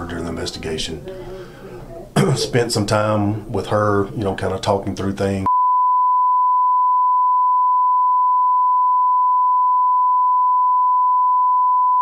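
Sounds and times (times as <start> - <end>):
person speaking: 0.0 - 5.5
censor bleep tone: 5.5 - 12.0.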